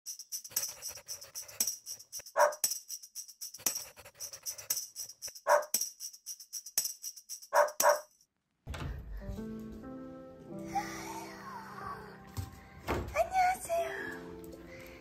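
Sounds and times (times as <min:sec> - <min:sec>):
upbeat music with tambourine: 0:00.0 - 0:08.2
dog barks: 0:02.4 - 0:02.6, 0:05.5 - 0:05.7, 0:07.5 - 0:08.1.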